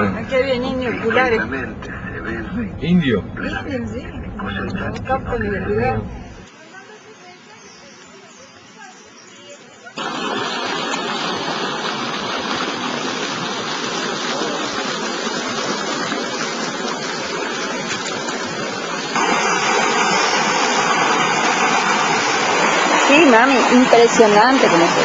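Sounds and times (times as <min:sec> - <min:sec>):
rushing water: 0:06.4 - 0:25.0.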